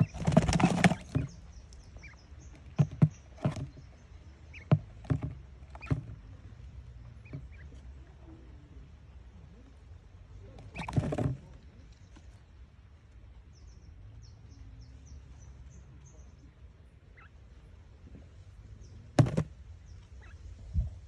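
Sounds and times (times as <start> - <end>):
quail chirps: 0.0 - 8.1, 10.3 - 11.6, 17.0 - 17.6, 18.9 - 21.0
thump with rustle: 19.2 - 19.6.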